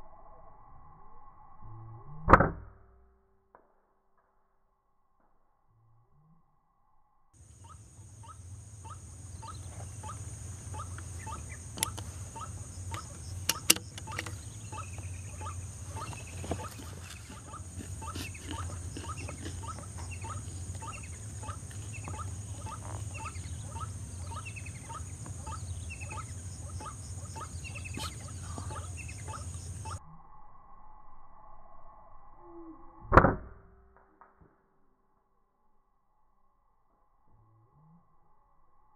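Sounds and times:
bird croaking call: 7.4 - 30.0
steady high hiss: 7.4 - 30.0
sharp clicks: 11.7 - 12.2, 12.8 - 15.1.

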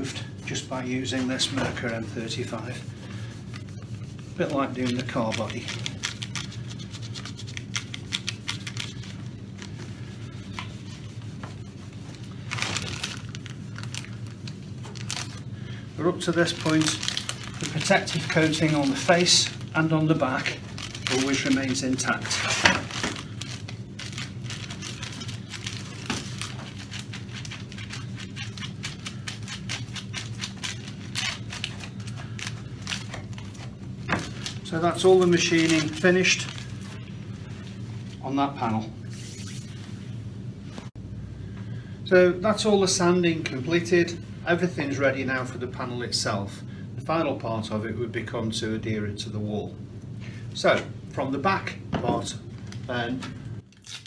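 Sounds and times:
steady low hum: 0.0 - 54.0
plastic film crinkling: 0.8 - 38.2, 53.7 - 54.0.

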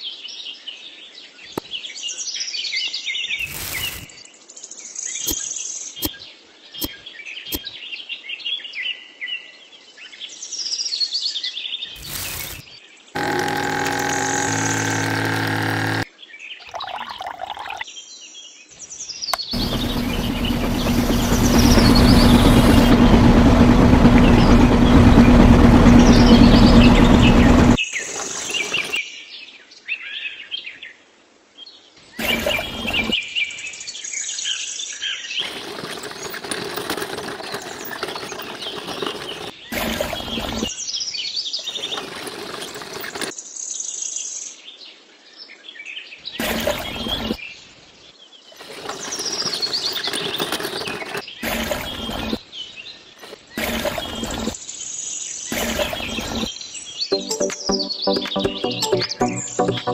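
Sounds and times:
small electric motor humming: 3.4 - 4.1, 12.0 - 12.6, 13.2 - 16.0, 19.6 - 29.0, 32.2 - 33.2
birds chirping: 19.4 - 29.0.

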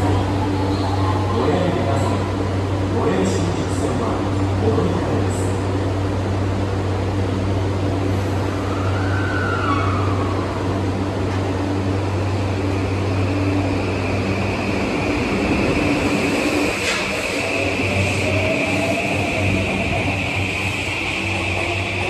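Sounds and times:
train inverter whine: 0.0 - 22.0
rising train motor tone: 8.1 - 22.0.

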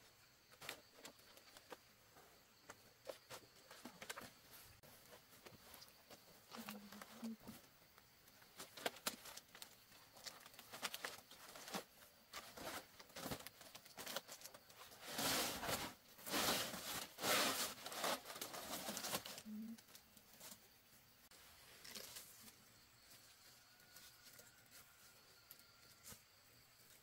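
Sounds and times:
tearing and rustling: 8.5 - 20.6, 21.7 - 22.6.

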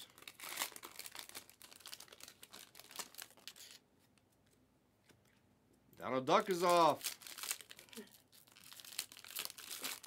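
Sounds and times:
card pack wrappers crinkling and tearing: 0.0 - 3.8, 6.4 - 10.0.

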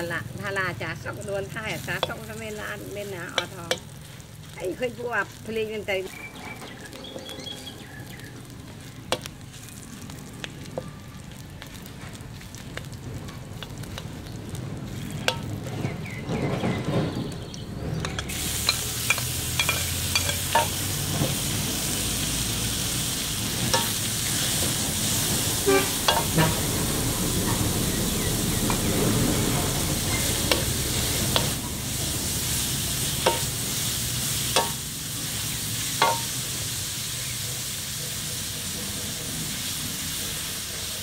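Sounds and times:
meat sizzling in hot fat: 0.0 - 41.0
metal spatula scraping a wok: 1.6 - 4.4, 18.0 - 36.5.

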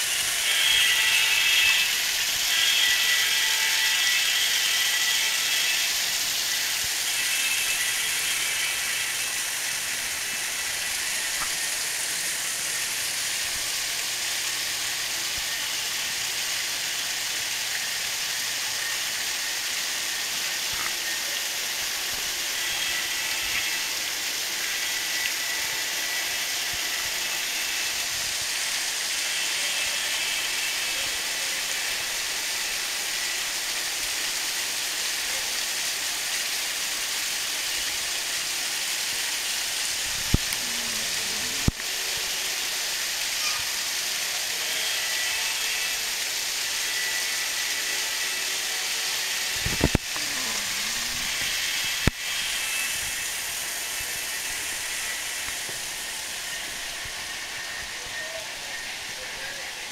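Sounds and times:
room ambience hiss: 45.6 - 59.9.

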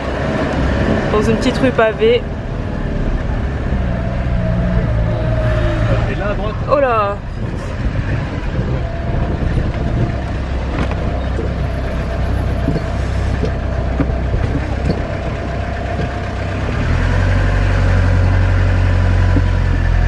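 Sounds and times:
motorhome engine running: 0.0 - 20.0
body rattling clicks and knocks: 6.5 - 20.0.

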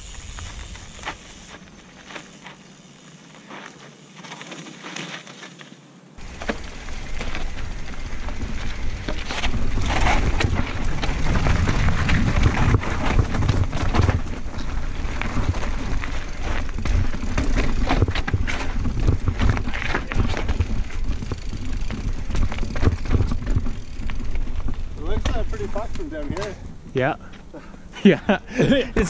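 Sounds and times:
bike rattling and clicking: 0.0 - 27.7
tyres crunching on rocks: 3.4 - 27.5
wind noise on microphone: 7.4 - 25.0.

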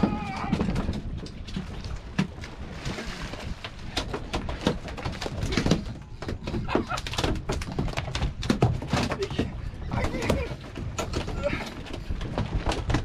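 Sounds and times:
wind rumble on microphone: 0.0 - 13.0
knocks and slaps on boat deck: 3.9 - 11.6.

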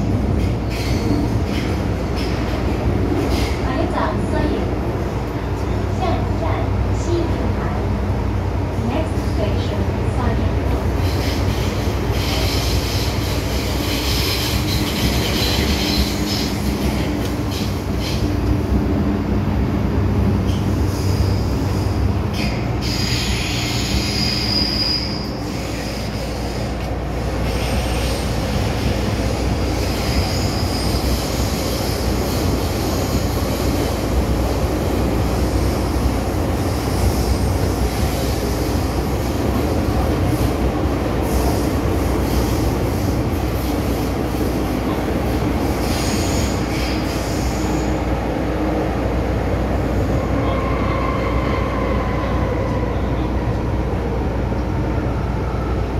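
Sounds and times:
train wheels rumbling on rail: 0.0 - 55.9
high-pitched wheel squeals: 22.8 - 26.1.

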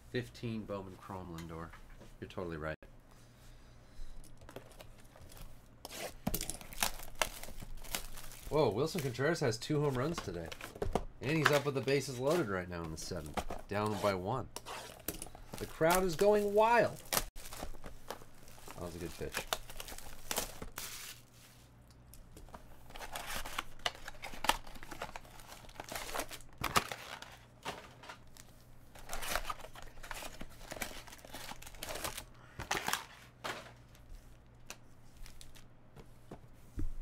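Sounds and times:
foil packs crinkling: 6.2 - 13.9, 14.9 - 21.3, 22.8 - 35.7
plastic wrap tearing and crumpling: 6.5 - 9.0, 15.6 - 21.3, 22.9 - 27.6, 29.0 - 33.2.

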